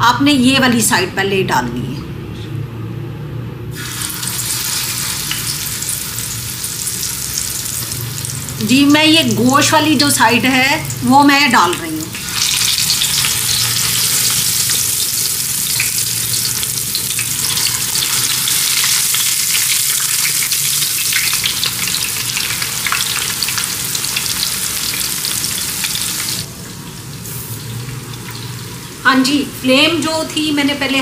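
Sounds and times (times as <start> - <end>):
fish frying in oil: 3.8 - 26.5.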